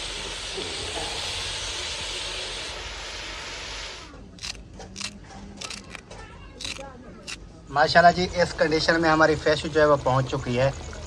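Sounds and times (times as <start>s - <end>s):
masala sizzling in a pot: 0.0s - 6.0s.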